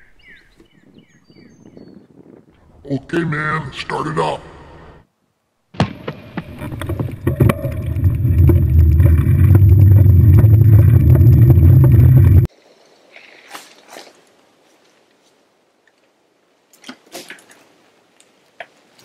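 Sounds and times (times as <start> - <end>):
engine rumbling: 6.3 - 12.5.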